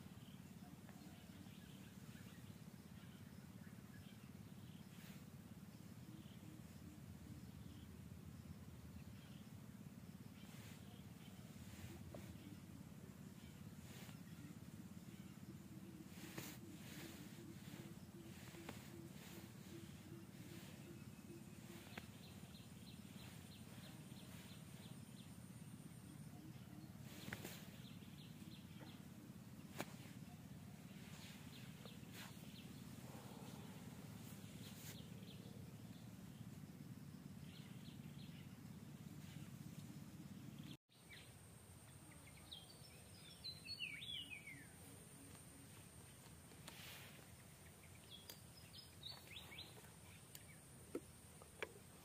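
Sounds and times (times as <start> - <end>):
low background hum: 0.0 - 52.0
falling bird chirps: 16.0 - 25.0.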